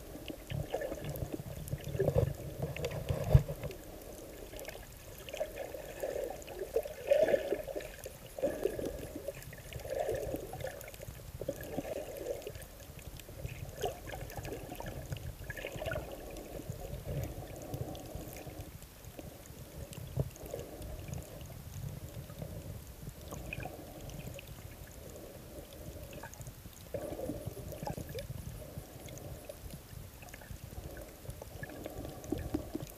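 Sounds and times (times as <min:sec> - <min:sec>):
muffled underwater water sloshing: 0:00.0 - 0:32.9.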